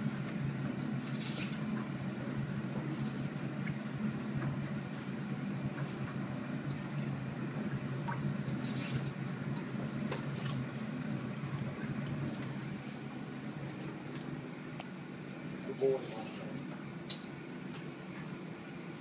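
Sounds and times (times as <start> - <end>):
treadmill motor hum: 0.0 - 19.0
water sloshing and dripping: 0.1 - 14.4.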